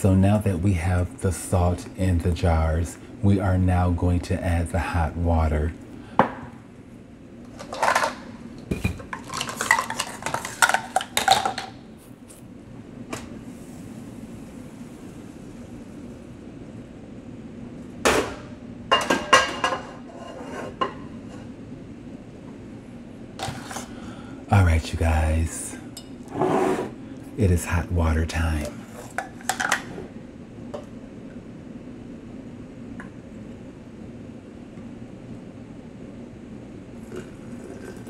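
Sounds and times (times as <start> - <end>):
kitchenware clattering: 7.5 - 11.7, 18.1 - 21.1, 29.0 - 30.0.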